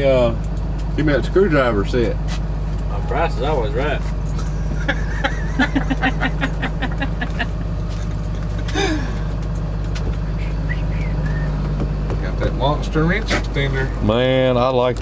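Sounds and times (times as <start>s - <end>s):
truck engine idling: 0.0s - 15.0s
man laughing: 4.3s - 9.3s.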